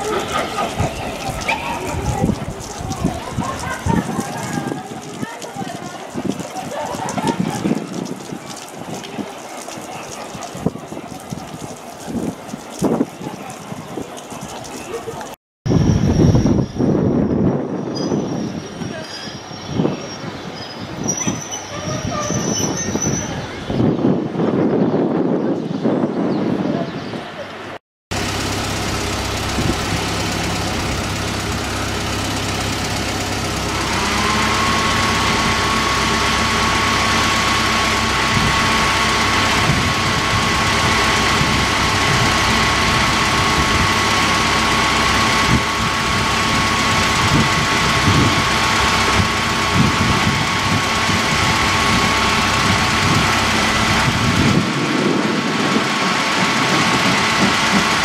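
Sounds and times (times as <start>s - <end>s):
train engine idling: 0.0s - 4.8s, 28.1s - 58.0s
steady whine: 28.1s - 58.0s.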